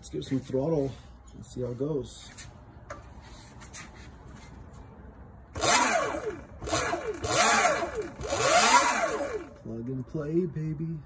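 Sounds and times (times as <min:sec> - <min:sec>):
electric motor whining: 0:05.6 - 0:09.6.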